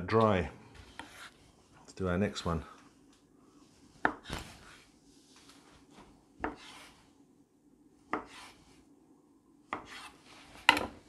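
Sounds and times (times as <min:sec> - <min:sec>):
dough rustling: 0:00.0 - 0:07.2, 0:08.0 - 0:08.9.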